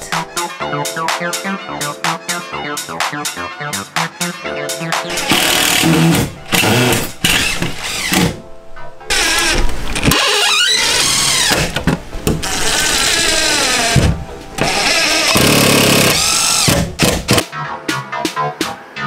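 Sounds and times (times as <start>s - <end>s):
background music with steady beat: 0.0s - 9.0s, 13.9s - 19.0s
power drill driving screws: 5.1s - 8.4s, 9.1s - 11.8s, 14.6s - 17.4s.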